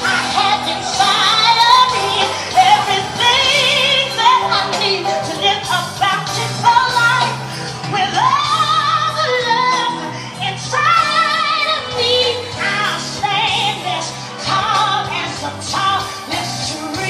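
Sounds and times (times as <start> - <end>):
backing music: 0.0 - 17.0
woman singing with vibrato: 0.0 - 17.0.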